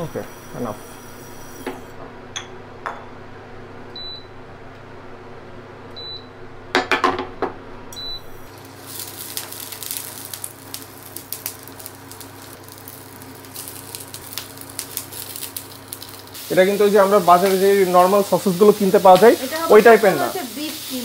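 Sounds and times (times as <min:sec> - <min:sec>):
sausages sizzling in hot oil: 0:08.2 - 0:21.0.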